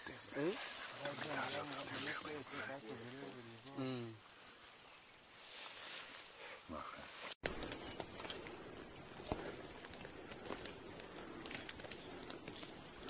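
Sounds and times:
person talking: 0:00.0 - 0:04.2
forest insects chorus: 0:00.0 - 0:07.4.

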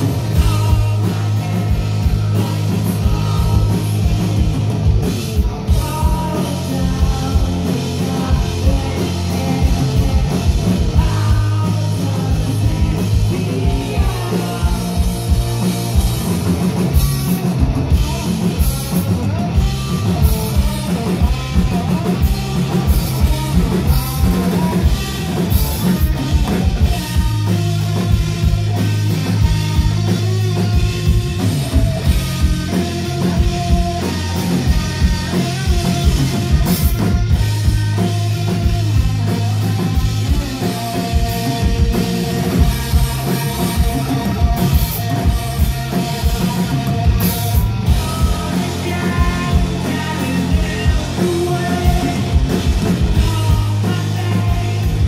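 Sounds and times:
bass guitar: 0:00.0 - 0:55.0
drum kit beat: 0:00.0 - 0:55.0
electric guitar: 0:00.0 - 0:55.0
person singing: 0:05.4 - 0:15.7, 0:20.5 - 0:27.5, 0:46.3 - 0:55.0.

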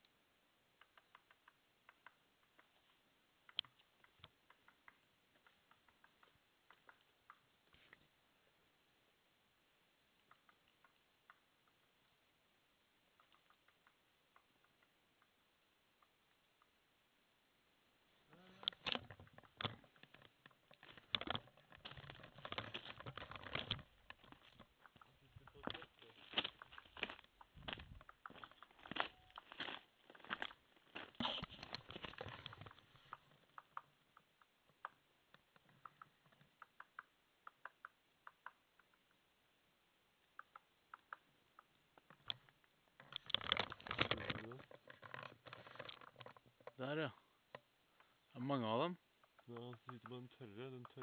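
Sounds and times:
faint small clicks: 0:00.8 - 0:08.1, 0:10.2 - 0:11.9, 0:13.1 - 0:15.4, 0:31.3 - 0:39.2, 0:40.2 - 0:48.2
footsteps on dry leaves: 0:26.0 - 0:31.4.

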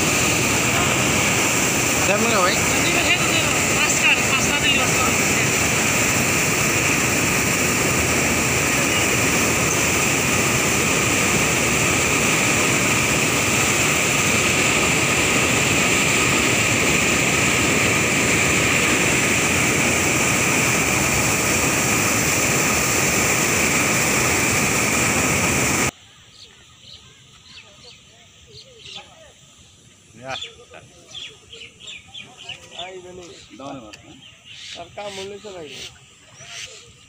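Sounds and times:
water rushing through sluice gates: 0:00.0 - 0:25.9.

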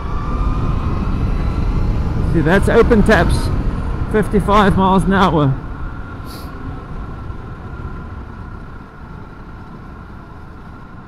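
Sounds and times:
electric motor whine: 0:00.0 - 0:04.1
wind and road rumble: 0:00.0 - 0:11.0.

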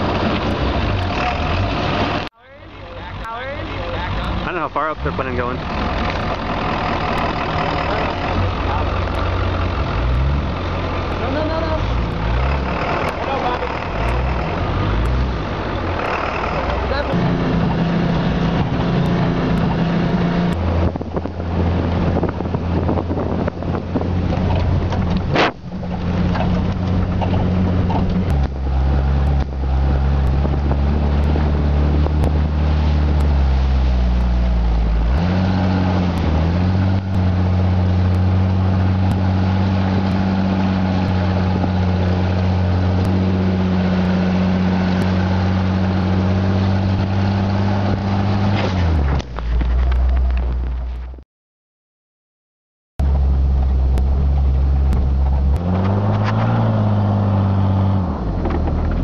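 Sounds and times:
truck engine running: 0:00.0 - 0:51.2, 0:53.0 - 0:59.0
wind on microphone: 0:17.1 - 0:51.2.

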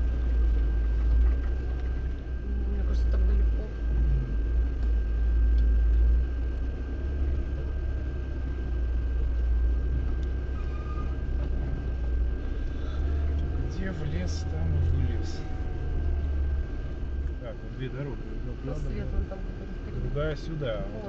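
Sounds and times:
car engine and road rumble: 0:00.0 - 0:21.0
faint high whine: 0:00.0 - 0:21.0.

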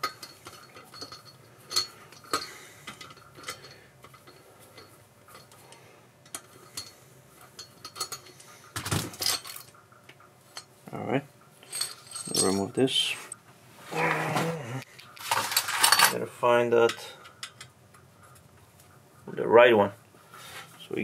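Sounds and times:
metal clatter: 0:15.2 - 0:16.2.

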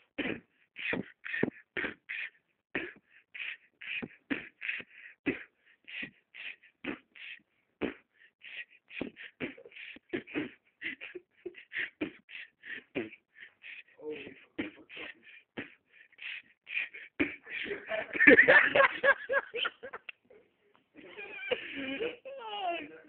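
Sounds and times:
person beatboxing: 0:00.2 - 0:17.8.

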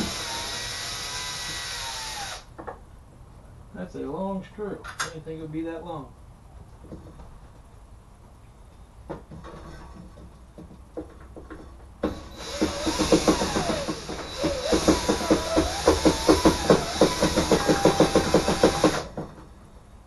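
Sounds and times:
cordless drill driving screw: 0:00.0 - 0:02.5, 0:12.1 - 0:19.1.

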